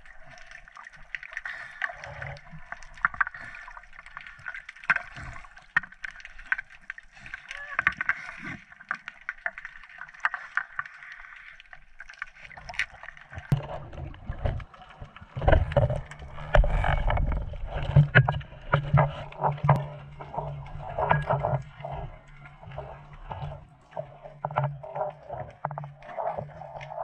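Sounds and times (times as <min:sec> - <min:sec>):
low rumble of moving water: 0:00.0 - 0:27.0.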